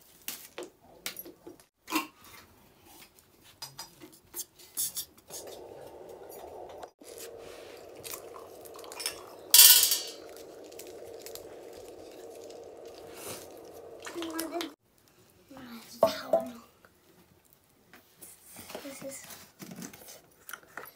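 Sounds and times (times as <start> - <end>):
low steady hum: 5.2 - 14.8
dishes clattering: 9.0 - 10.2.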